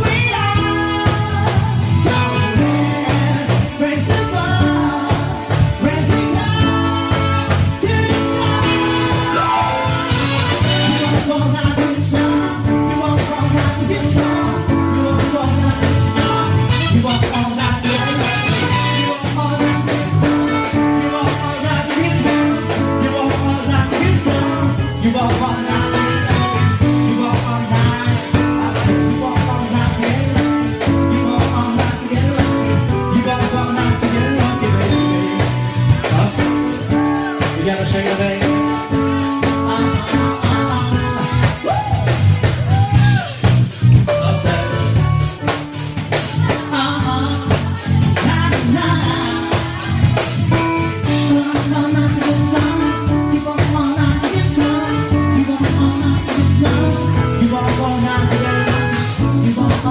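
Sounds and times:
keyboard: 0:00.0 - 0:59.9
person singing: 0:00.0 - 0:59.9
steady drum beat: 0:00.0 - 0:59.9.

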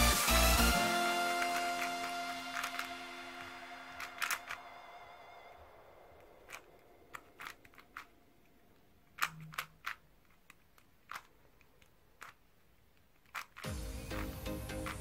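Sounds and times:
puzzle cube layers clicking: 0:00.0 - 0:04.7, 0:06.2 - 0:15.0.

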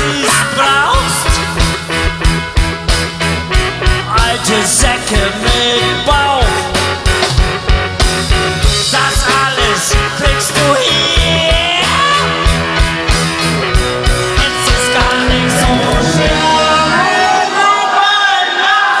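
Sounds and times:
steady drum beat: 0:00.0 - 0:17.7
bass guitar: 0:00.0 - 0:18.0
electric guitars: 0:00.0 - 0:18.6.

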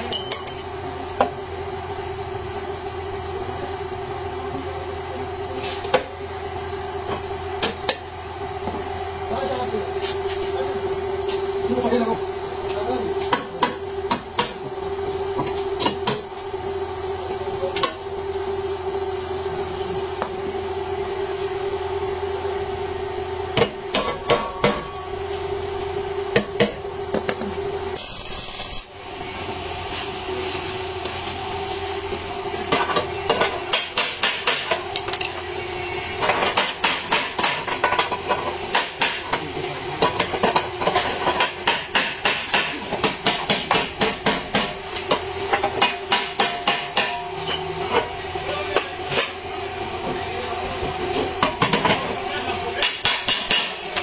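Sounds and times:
steady mechanical hum: 0:00.0 - 0:54.0
hammer blows on car panel: 0:41.6 - 0:44.7, 0:52.8 - 0:53.8.

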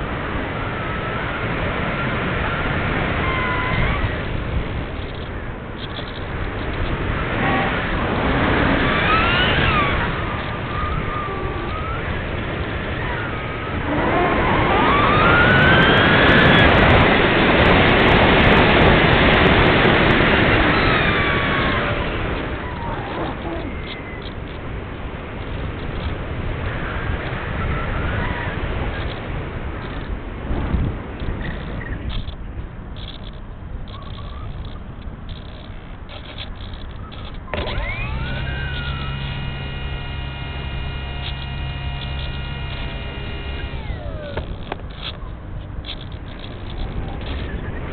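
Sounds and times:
electric motor and propeller whine: 0:00.0 - 0:30.1, 0:34.5 - 0:47.9
wind rush: 0:00.0 - 0:33.9.

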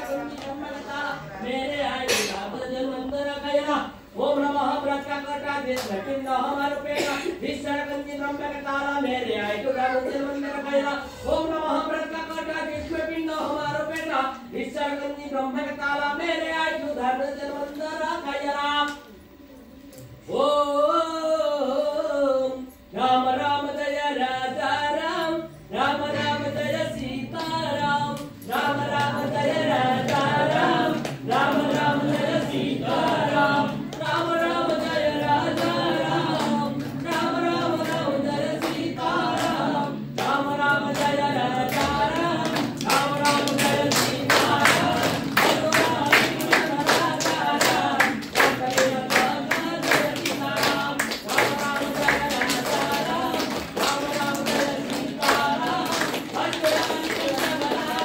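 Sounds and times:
rhythmic hand-clapping: 0:00.0 - 0:10.3, 0:11.4 - 0:14.4, 0:25.8 - 0:58.0
group singing a hymn: 0:00.0 - 0:19.2, 0:20.2 - 0:58.0.

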